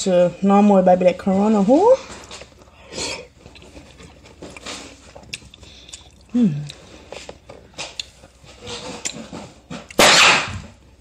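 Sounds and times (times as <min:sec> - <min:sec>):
wet chewing: 0:02.0 - 0:10.1.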